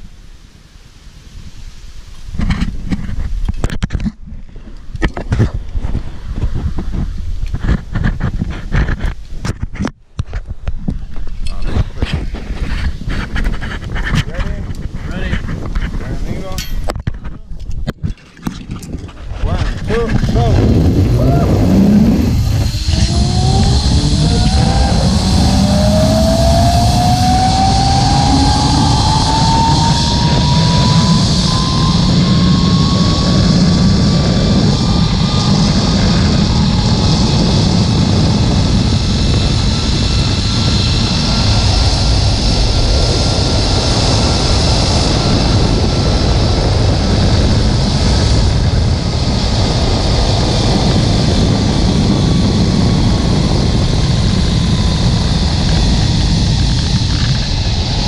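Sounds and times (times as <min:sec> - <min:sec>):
wind rumble on microphone: 0:00.0 - 0:58.0
zipline pulleys whining on cable: 0:20.2 - 0:58.0.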